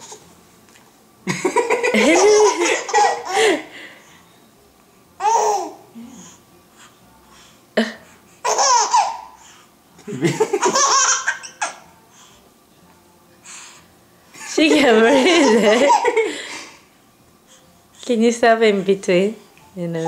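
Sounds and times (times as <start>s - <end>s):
baby giggling: 1.4s - 3.7s, 8.4s - 9.3s, 10.2s - 11.8s, 14.5s - 16.3s.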